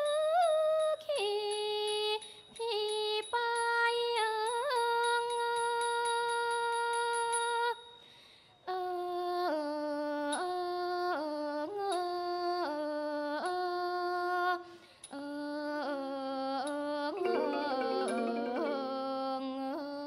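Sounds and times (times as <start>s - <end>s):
instrumental ensemble: 17.2s - 19.1s
person singing held notes: 17.2s - 19.3s.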